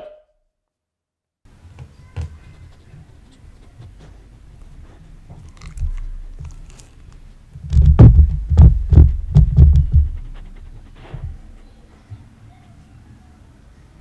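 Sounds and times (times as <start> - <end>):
dog sniffing: 2.3 - 7.0, 9.0 - 12.0.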